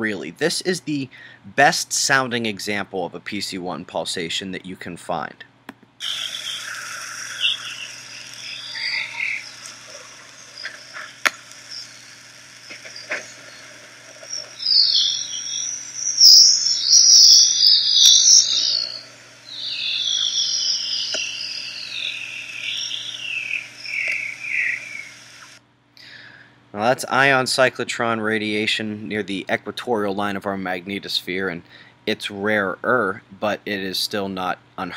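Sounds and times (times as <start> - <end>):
high chirping warbling hiss: 6.0 - 25.6.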